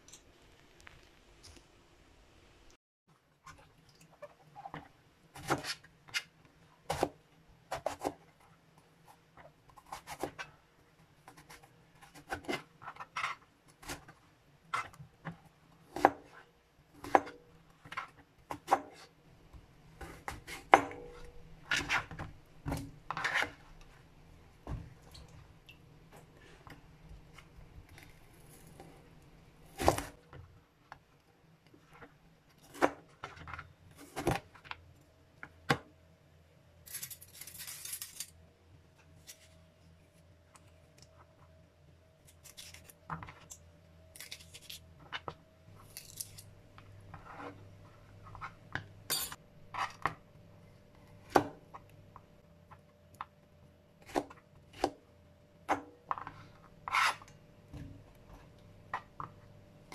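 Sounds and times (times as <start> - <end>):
knife scraping rasp: 56.9 - 57.2.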